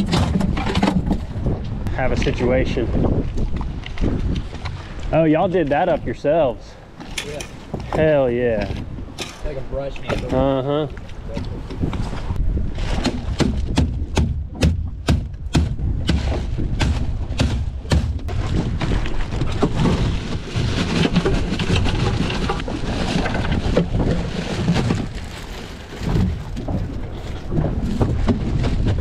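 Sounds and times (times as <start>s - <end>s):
wind rumbling on microphone: 0.0s - 29.0s
ice rattling and sliding: 18.3s - 29.0s
plastic bag crinkling: 24.3s - 26.6s.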